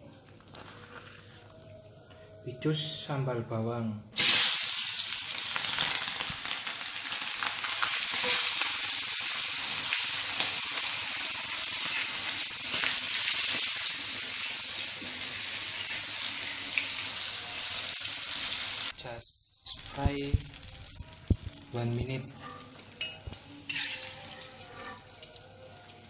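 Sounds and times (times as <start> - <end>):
small crackles: 0.2 - 1.8
food sizzling in hot oil: 4.2 - 26.0.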